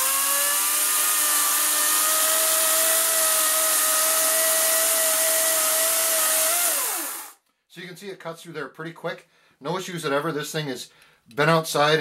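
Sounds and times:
electric chainsaw cutting wood: 0.0s - 7.4s.

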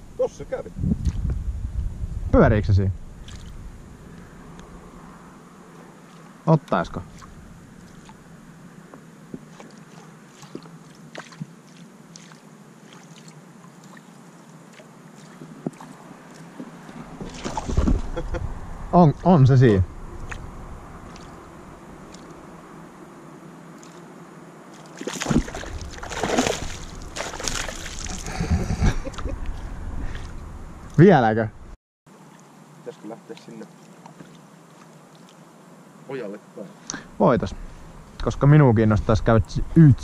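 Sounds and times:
water lapping at boat hull: 9.3s - 18.2s, 20.2s - 20.4s, 21.0s - 22.5s, 24.7s - 28.4s, 33.3s - 35.4s
fish splashing at water surface: 16.8s - 18.1s, 21.0s - 21.4s, 22.0s - 22.4s, 24.7s - 28.4s
low thuds: 17.0s - 18.6s.

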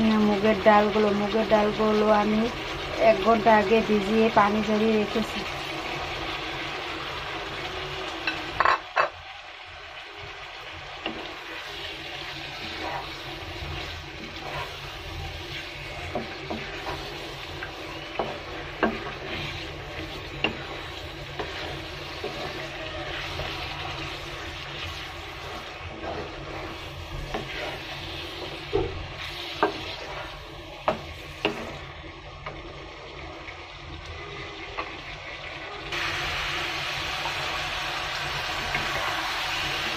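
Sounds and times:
food sizzling in a wok: 0.0s - 39.9s
wooden spatula scraping a pan: 11.0s - 32.7s.

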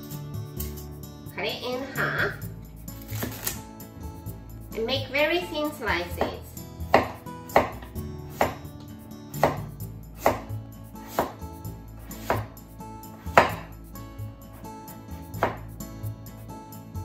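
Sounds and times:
knife slicing radish: 2.9s - 3.6s, 6.1s - 8.7s, 9.4s - 11.4s, 12.0s - 13.7s, 15.2s - 15.8s
knife knocking on wooden board: 13.3s - 13.7s, 15.4s - 15.7s.

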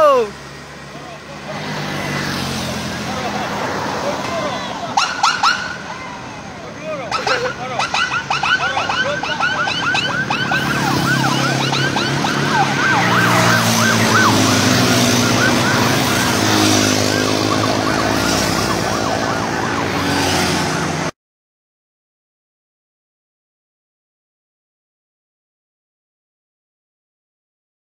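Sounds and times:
vehicle engines droning: 0.0s - 21.1s
motorcycle sirens yelping: 0.0s - 21.2s.

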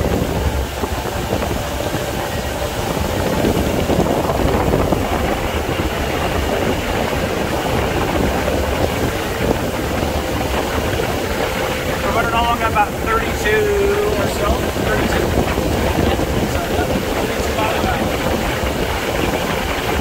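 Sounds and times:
boat engine droning: 0.0s - 20.0s
wind noise on microphone: 0.0s - 20.0s.

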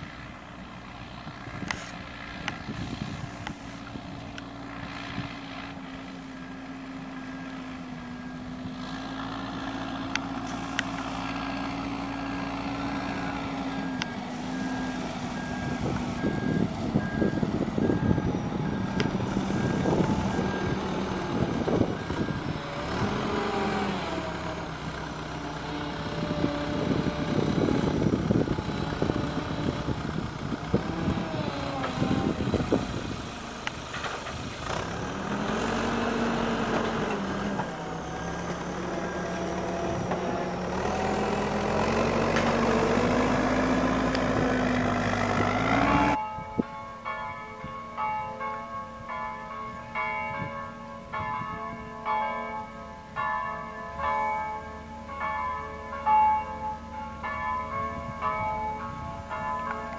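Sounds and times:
engine running: 0.0s - 46.2s
chiming bells: 45.9s - 59.9s.

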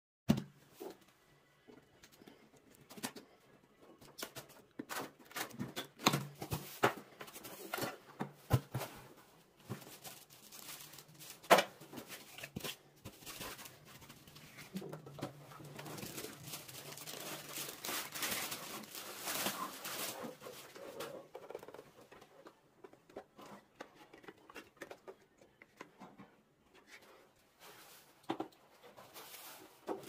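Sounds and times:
packing sheet rustling: 6.5s - 21.0s.

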